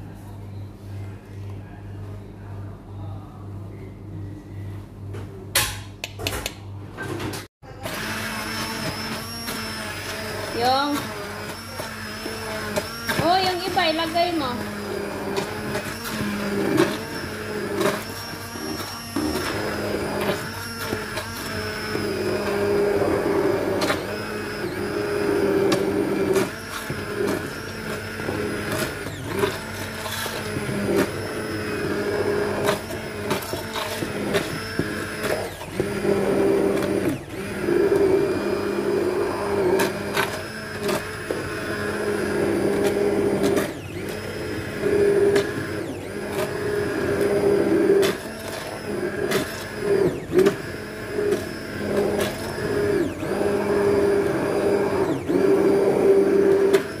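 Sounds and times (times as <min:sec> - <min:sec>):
immersion blender motor hum: 0:07.8 - 0:57.0
blender knocking in pot: 0:25.2 - 0:38.9.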